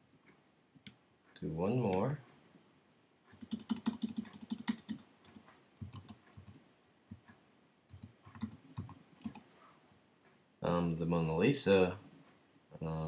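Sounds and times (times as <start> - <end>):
typing on a computer keyboard: 3.3 - 9.5.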